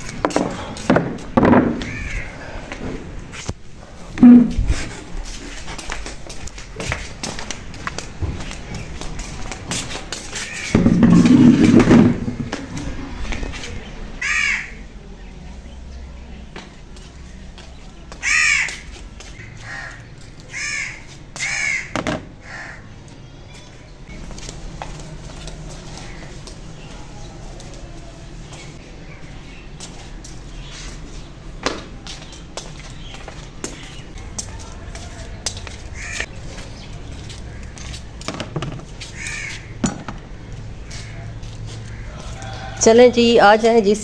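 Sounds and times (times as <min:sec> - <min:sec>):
crow cawing: 0:01.8 - 0:02.5, 0:14.2 - 0:14.8, 0:18.2 - 0:18.8, 0:19.4 - 0:22.9, 0:36.0 - 0:36.3, 0:39.1 - 0:39.7
basket knocking on plastic table: 0:38.3 - 0:38.8.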